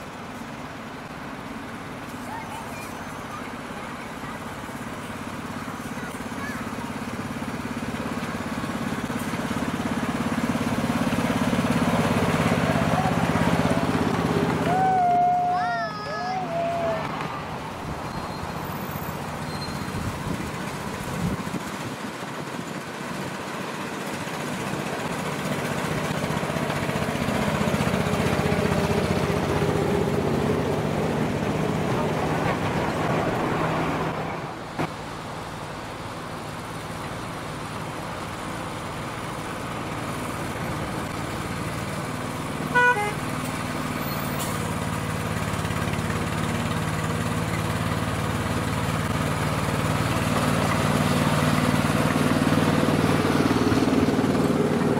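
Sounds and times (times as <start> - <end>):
miniature train rumbling on track: 0.0 - 54.9
small locomotive engine running: 0.0 - 54.9
locomotive horn toot: 42.7 - 43.3.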